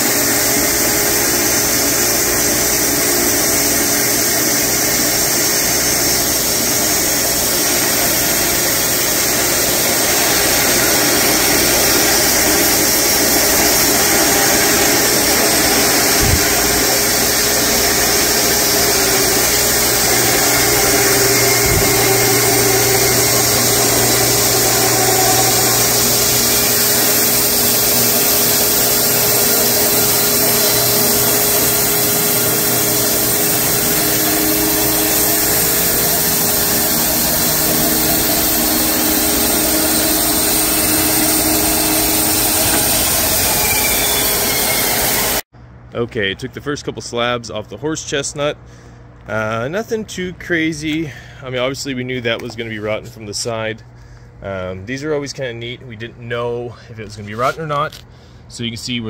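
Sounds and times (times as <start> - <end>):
bandsaw mill sawing log: 0.0 - 45.4.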